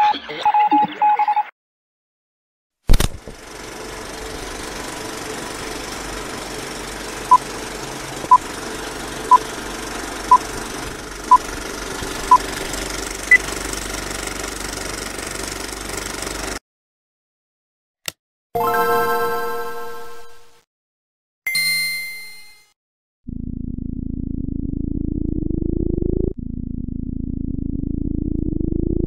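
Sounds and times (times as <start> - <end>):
film projector rattling: 2.9 - 16.6.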